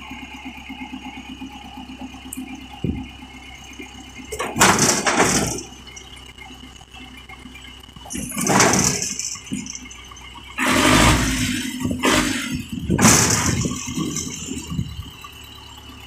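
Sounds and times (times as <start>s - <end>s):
tractor diesel engine running: 0.0s - 16.0s
loud rushing hiss: 10.6s - 14.0s.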